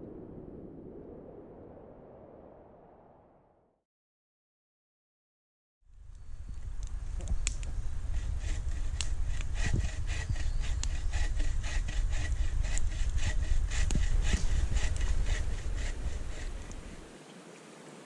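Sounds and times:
low rumble: 0.0s - 3.6s, 5.9s - 17.0s
hand saw cutting wood: 8.0s - 17.0s.

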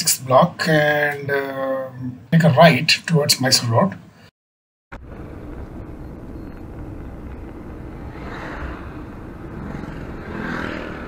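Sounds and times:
car engine and tyre rumble: 5.0s - 11.0s.

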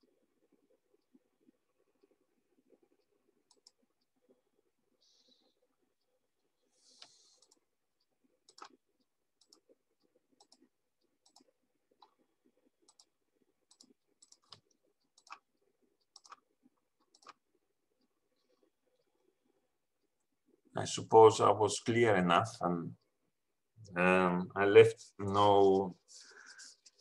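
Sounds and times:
faint irregular clicks: 0.0s - 20.7s.

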